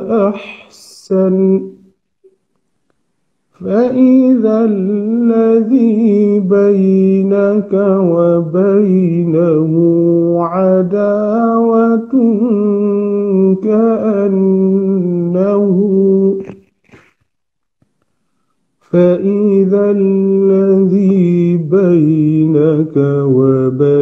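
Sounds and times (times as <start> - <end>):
man chanting melodically: 0.0 - 2.0, 3.6 - 16.7, 18.8 - 24.0.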